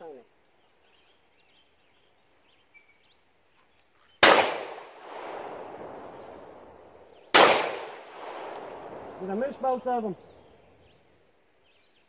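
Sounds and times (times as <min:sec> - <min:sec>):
pistol shots with echo: 0:04.2 - 0:10.8.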